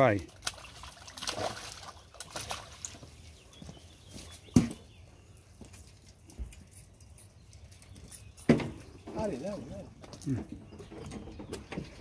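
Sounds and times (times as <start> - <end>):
fish splashing at water surface: 0.3 - 3.0.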